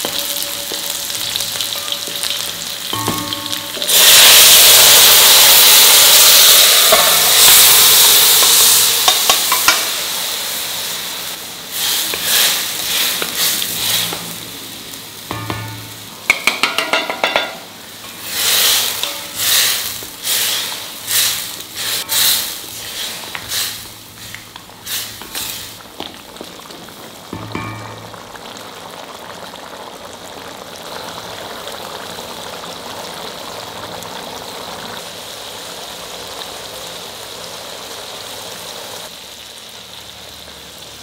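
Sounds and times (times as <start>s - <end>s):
meat sizzling in a pan: 0.0s - 41.0s
spatula scraping a pan: 18.0s - 25.7s.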